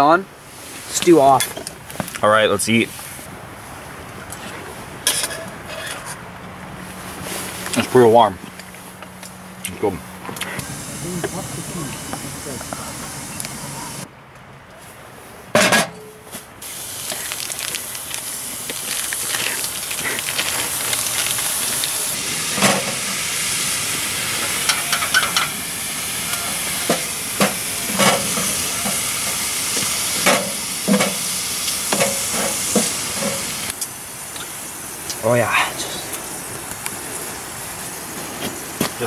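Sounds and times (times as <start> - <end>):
meat sizzling in a skillet: 16.6 - 34.7.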